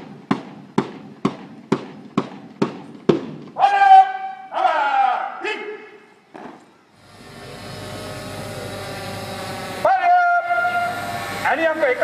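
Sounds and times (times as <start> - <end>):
drum beating marching time: 0.0 - 4.2
person shouting drill command: 3.6 - 6.0, 9.7 - 12.0.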